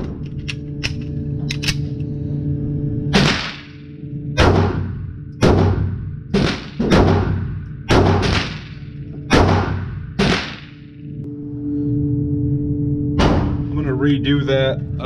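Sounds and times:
steady low hum: 0.0 - 15.0
pistol shots echoing indoors: 4.4 - 11.0.

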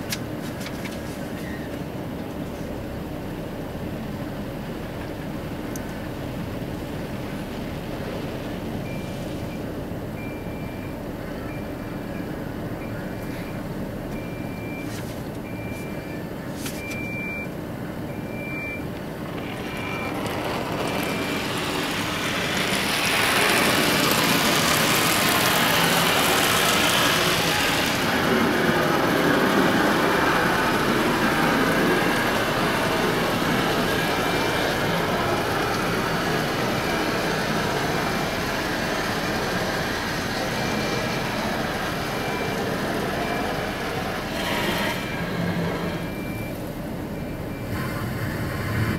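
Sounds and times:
car wash machinery: 0.0 - 48.9
beeping: 8.9 - 47.8
water jets spraying over car: 21.1 - 44.9.

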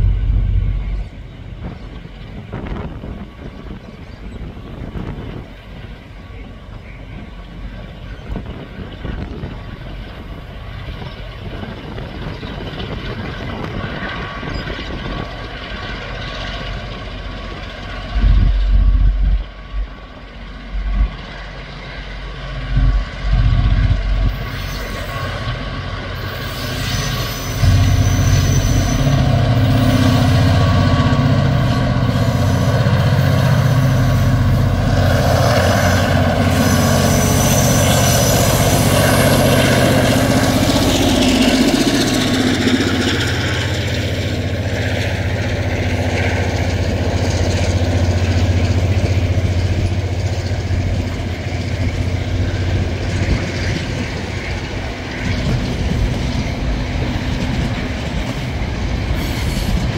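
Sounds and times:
diesel locomotive engines working hard: 0.0 - 59.9.

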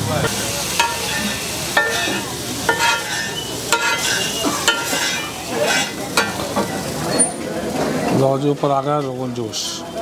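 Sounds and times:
meat sizzling: 0.0 - 8.3
metal spatula clanking on griddle: 0.2 - 7.4.

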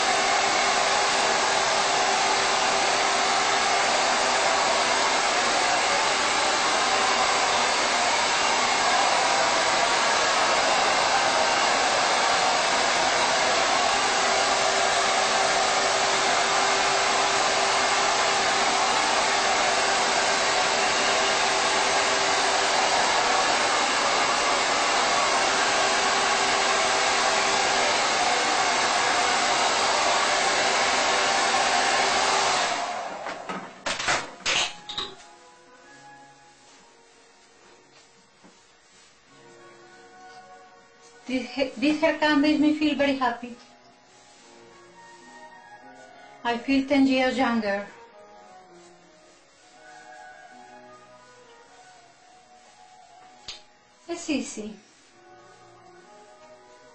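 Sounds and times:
hair dryer running: 0.0 - 34.6.

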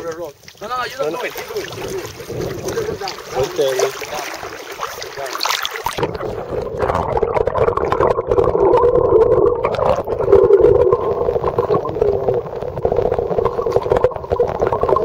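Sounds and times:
crackling and small clicks: 0.0 - 0.7, 9.6 - 15.0
underwater hum: 0.3 - 15.0.

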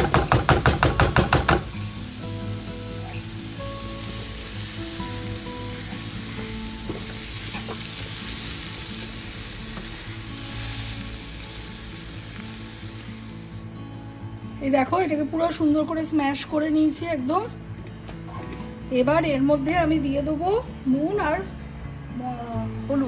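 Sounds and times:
food sizzling in a frying pan: 0.0 - 13.8.

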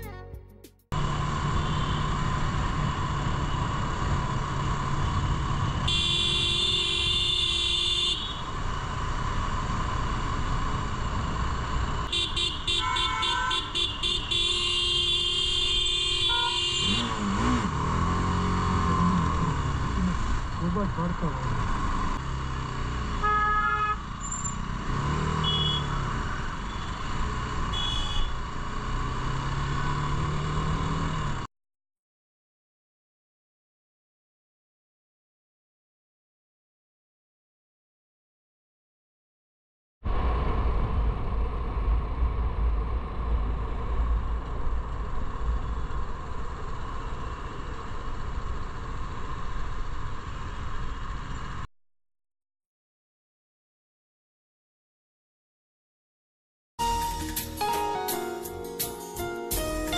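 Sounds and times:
engine and road noise: 0.0 - 31.5, 40.0 - 51.7
vehicle horn honking: 5.9 - 8.4, 12.1 - 17.5, 23.2 - 24.0, 25.3 - 26.0, 27.7 - 28.4
motorcycle engine running: 16.3 - 23.3.

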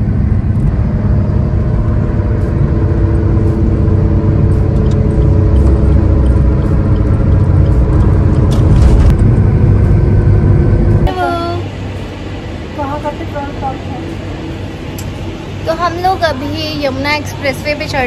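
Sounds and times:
tyre and road rumble: 0.0 - 11.5
car engine hum: 0.0 - 18.0.

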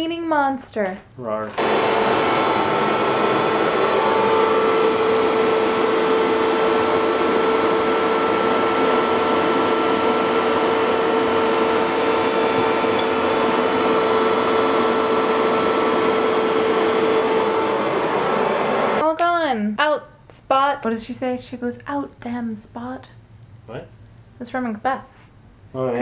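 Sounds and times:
carpet shampooer motor whine: 1.5 - 19.0
rushing suction noise: 1.6 - 19.0.

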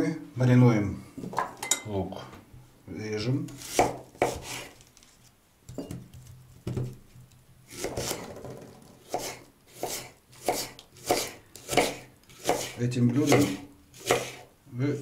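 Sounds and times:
knife chopping on wooden board: 3.5 - 4.7, 7.7 - 8.3, 9.0 - 14.5.

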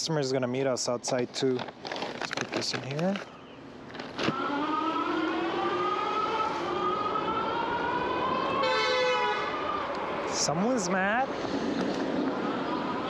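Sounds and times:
whining tone rising in pitch: 4.3 - 10.1
car horn honk: 8.6 - 9.5.

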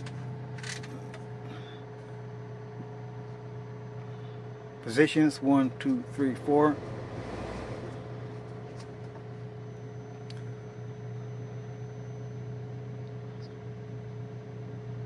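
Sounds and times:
car engine idling: 0.0 - 11.7
ventilation fan: 0.0 - 15.0.

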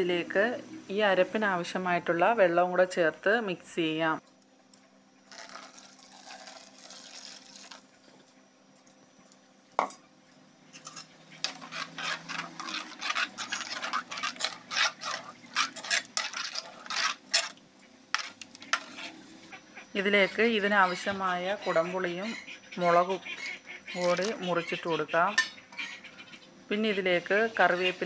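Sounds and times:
water pouring into a pot: 5.3 - 7.8
spoon stirring and scraping pot: 10.8 - 19.5, 23.3 - 24.5.

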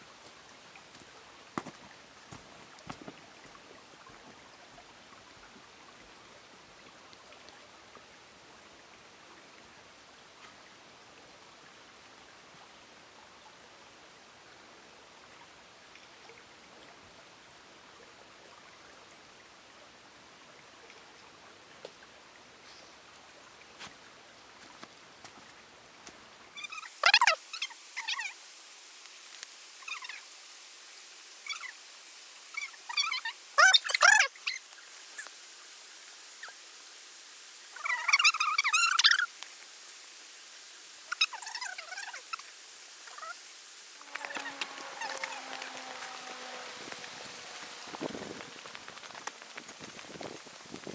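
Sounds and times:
forest ambience hiss: 0.0 - 50.9
footsteps on leaf litter: 44.1 - 50.9.

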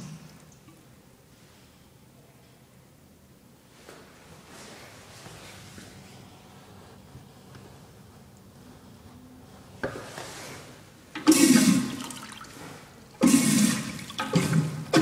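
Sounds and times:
urinal flushing water rushing: 11.2 - 15.0.

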